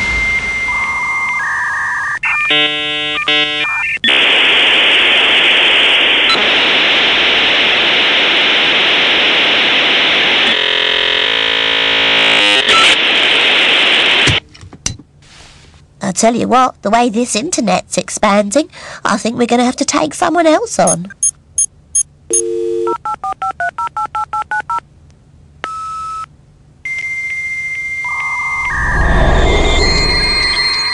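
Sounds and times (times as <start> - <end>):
modem high tone: 0.0 - 2.1, 28.1 - 30.9
modem hiss: 2.5 - 14.4
stacked electronic tones: 28.1 - 30.9
buzzy electronic tones: 28.3 - 30.9.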